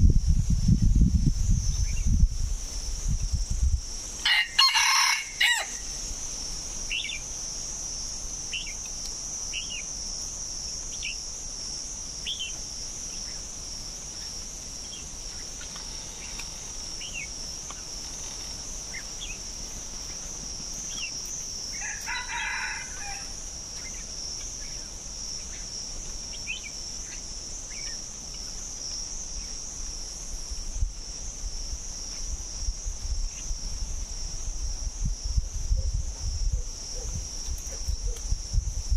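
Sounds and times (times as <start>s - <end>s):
high insect drone: 0.0s - 38.9s
rooster crowing: 4.2s - 5.9s, 21.7s - 23.5s
bird chirps: 6.9s - 7.3s, 8.5s - 8.8s, 12.2s - 13.5s.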